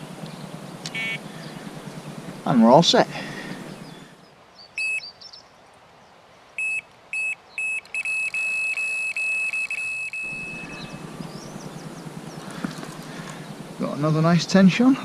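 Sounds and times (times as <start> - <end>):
bite alarm beeps: 0.9 - 1.2, 4.8 - 5.1, 6.6 - 12.0.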